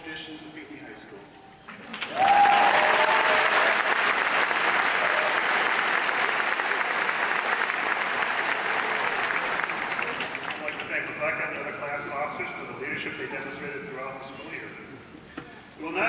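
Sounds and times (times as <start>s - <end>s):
audience applauding: 1.7s - 11.2s.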